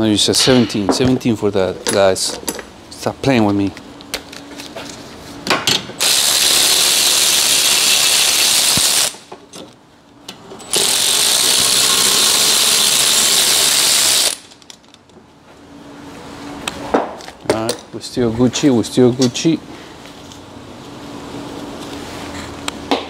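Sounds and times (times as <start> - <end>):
electric ratchet spinning bolts: 6.0 - 9.3, 10.6 - 14.6.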